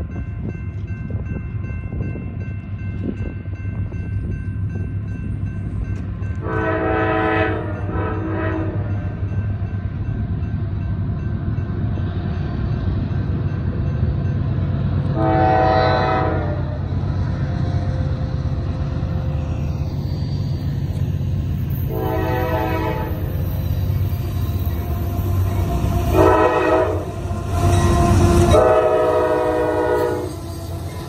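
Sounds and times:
diesel locomotives rumbling: 0.0s - 31.0s
train air horn blasts: 6.4s - 9.2s, 15.1s - 17.0s, 21.9s - 23.6s, 24.7s - 31.0s.

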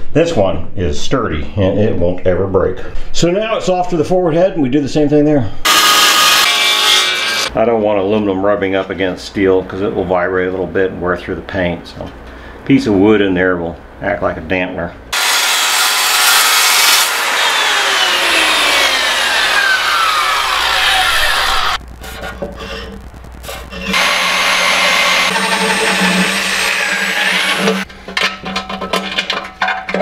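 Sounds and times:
electric drill boring metal: 5.7s - 7.5s, 15.2s - 23.0s, 23.6s - 27.9s
noise with falling tones: 17.2s - 27.9s.

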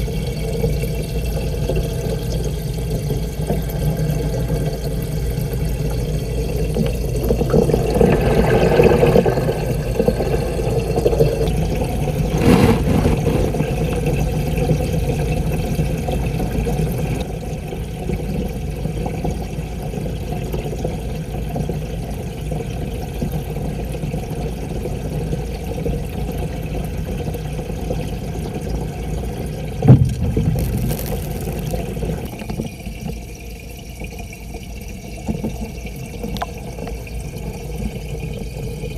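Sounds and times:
muffled underwater rumble: 0.0s - 21.7s, 26.6s - 32.6s.

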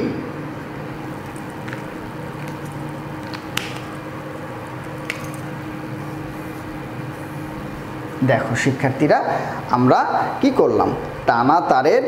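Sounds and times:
low room hum: 0.0s - 12.0s
markers clicking: 1.2s - 5.5s.

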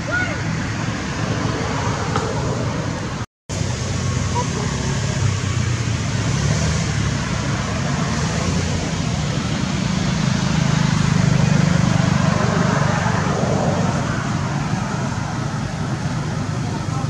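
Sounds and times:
engine rumble: 0.0s - 17.0s
outdoor hiss: 3.5s - 11.2s.

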